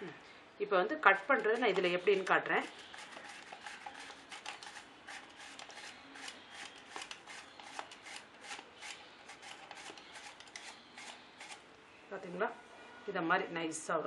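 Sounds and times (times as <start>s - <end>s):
slicer scraping banana slices: 1.2s - 11.6s.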